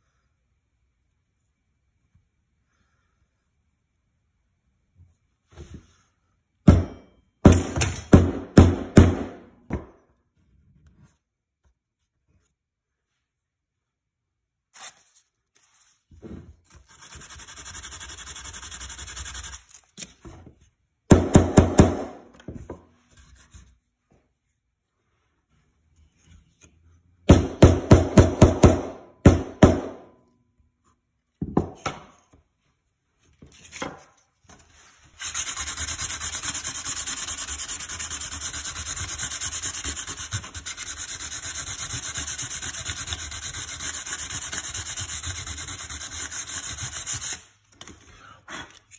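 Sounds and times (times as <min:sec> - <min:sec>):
sandpaper sanding wood: 0:16.8 - 0:19.8, 0:35.1 - 0:47.4.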